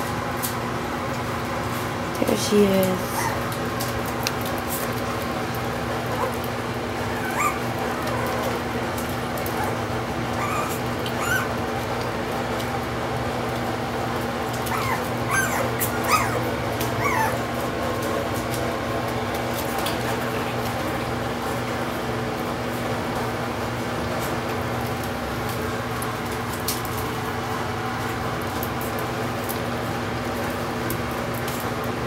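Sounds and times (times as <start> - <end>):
puppies whining and yipping: 3.1 - 3.5, 6.1 - 8.7, 9.4 - 11.6, 14.6 - 17.5.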